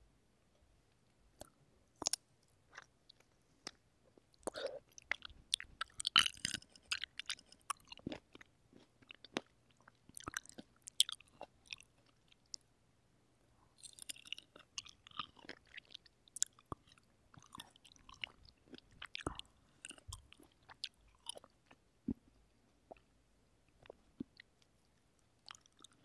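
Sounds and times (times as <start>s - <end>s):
chewing cherries wet clicks: 1.4s - 12.6s, 13.8s - 21.8s.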